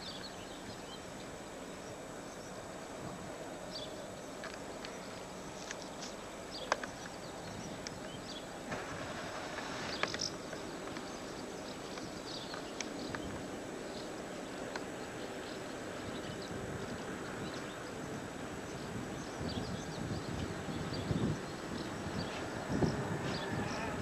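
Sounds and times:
small birds chirping: 0.0s - 2.7s, 3.3s - 24.0s
distant diesel locomotive rumble: 7.1s - 19.9s.

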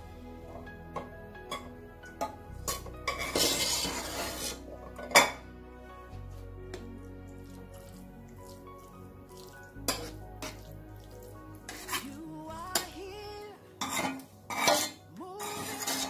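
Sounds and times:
soft background music: 0.0s - 16.0s
metal spoon scraping baking dish: 2.6s - 5.4s, 9.9s - 10.6s, 11.7s - 12.9s, 13.8s - 16.0s.

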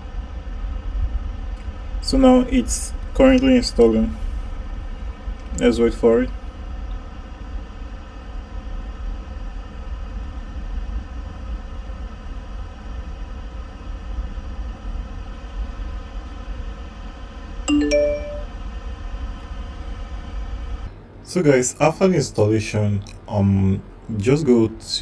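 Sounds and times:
low room hum: 0.0s - 25.0s
two-note ding-dong chime: 17.7s - 18.5s.

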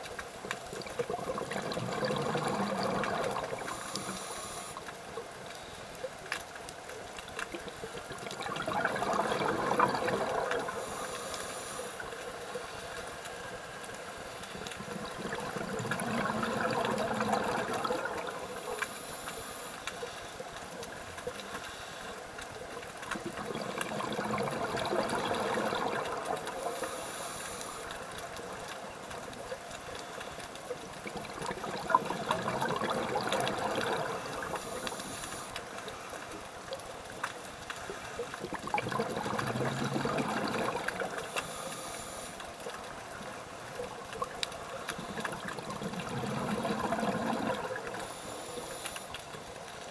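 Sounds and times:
exhaled bubbles gurgling: 0.0s - 5.4s, 7.4s - 12.7s, 14.4s - 19.2s, 22.6s - 37.2s, 37.9s - 49.9s
regulator hiss: 3.5s - 4.9s, 10.6s - 14.6s, 18.4s - 20.4s, 26.6s - 28.6s, 34.1s - 36.3s, 41.2s - 43.4s, 47.9s - 49.2s.

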